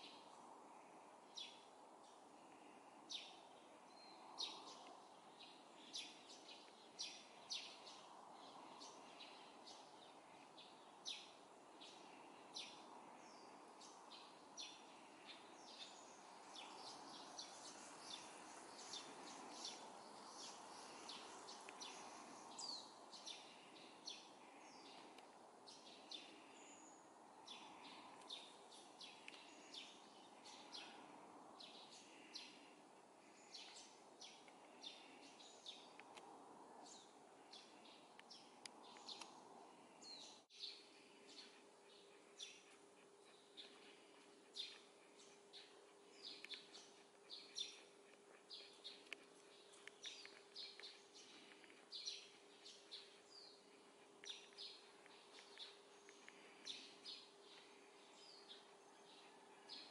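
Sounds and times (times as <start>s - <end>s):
sparrows chirping: 0.0s - 59.9s.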